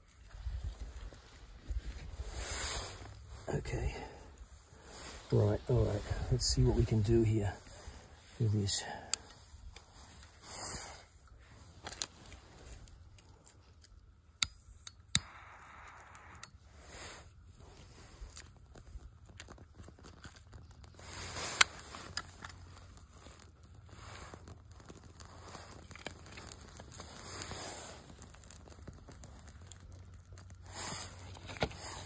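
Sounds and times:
bark crinkling and rustling: 17.5s - 32.0s.

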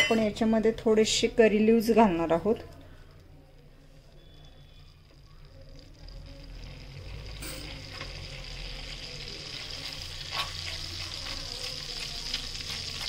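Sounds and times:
leaves sizzling in hot butter: 4.1s - 13.0s
spatula stirring in pan: 4.1s - 13.0s.

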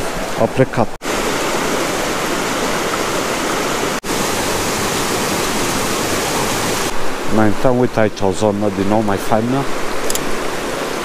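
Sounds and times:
river rushing over rocks: 1.0s - 7.4s.

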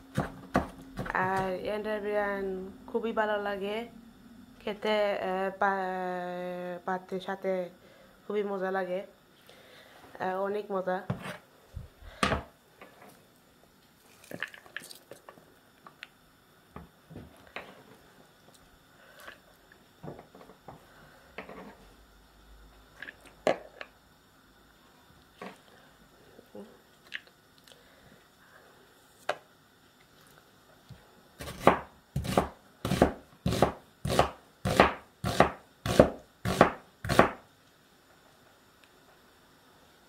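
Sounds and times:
knife chopping food: 0.1s - 1.5s, 31.4s - 37.4s.

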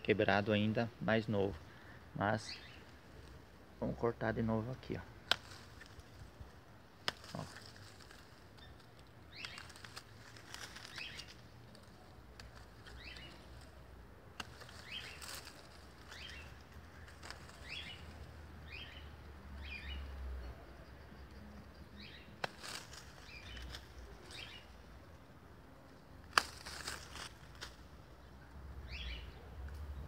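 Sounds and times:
pruning shears snipping: 5.2s - 6.2s, 6.9s - 18.3s, 22.4s - 24.7s, 26.2s - 27.9s.

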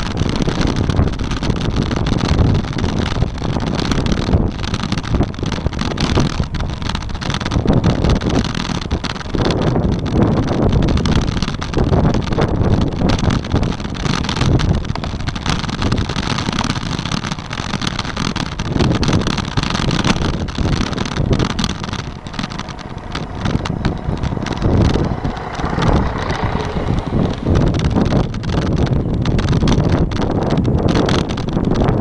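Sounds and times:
bicycle knocks and rattles: 0.0s - 32.0s
wind buffeting microphone: 0.0s - 32.0s
bus passing: 20.7s - 30.6s.

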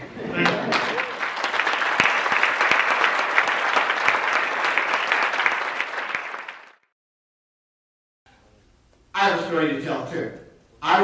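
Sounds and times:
audience applauding: 0.3s - 6.9s.

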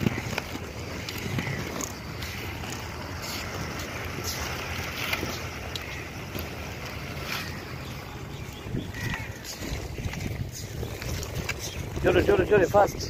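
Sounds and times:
skate wheels rolling on stone: 0.0s - 13.0s
wind on microphone: 0.0s - 13.0s.

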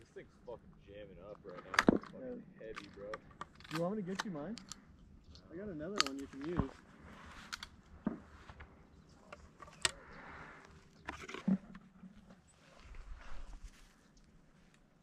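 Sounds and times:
rustling in dry grass: 6.7s - 8.7s, 12.3s - 15.0s.

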